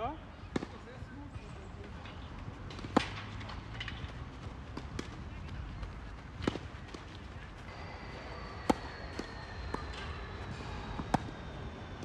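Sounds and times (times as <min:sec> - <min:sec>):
tennis ball bouncing: 0:02.7 - 0:03.4, 0:08.3 - 0:11.5
tennis racket hitting ball: 0:08.6 - 0:09.9.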